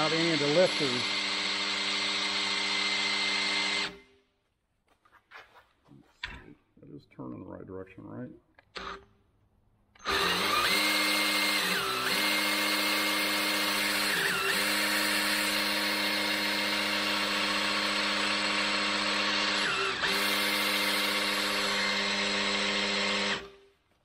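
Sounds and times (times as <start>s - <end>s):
cordless drill whining: 0.0s - 4.1s, 8.6s - 9.1s, 10.0s - 23.8s.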